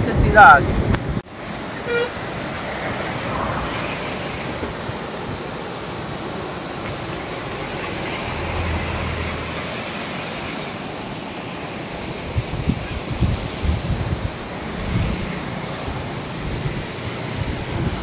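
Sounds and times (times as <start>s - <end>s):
wind on microphone: 0.0s - 1.2s, 3.2s - 5.6s, 12.0s - 18.0s
road traffic noise: 0.0s - 18.0s
low engine hum: 2.5s - 10.5s
wind buffeting microphone: 2.7s - 7.7s, 12.0s - 18.0s.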